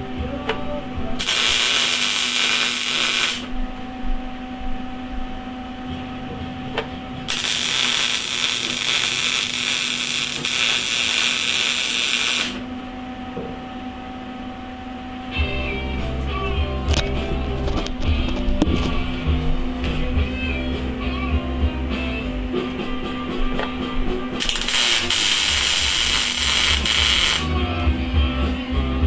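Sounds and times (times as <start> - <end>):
welder crackling hiss: 1.2 - 3.6, 7.3 - 12.7, 24.4 - 27.6.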